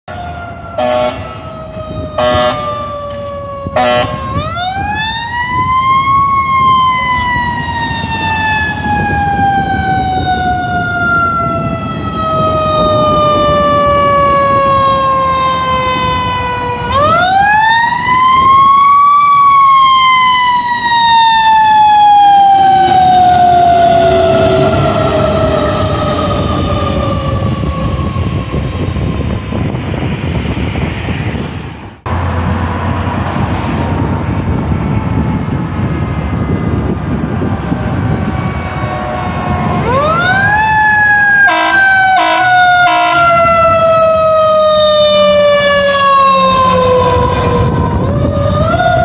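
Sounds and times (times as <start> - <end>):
truck engine rumble: 0.1 - 49.0
air horn blasts: 0.8 - 1.4, 2.2 - 2.8, 3.8 - 4.2, 41.4 - 43.5.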